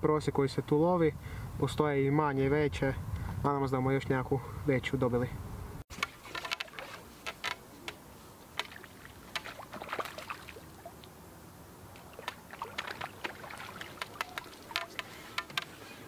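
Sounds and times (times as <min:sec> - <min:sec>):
light water splashing: 0:05.9 - 0:11.2, 0:11.9 - 0:16.0
small clicks and taps: 0:12.0 - 0:15.8.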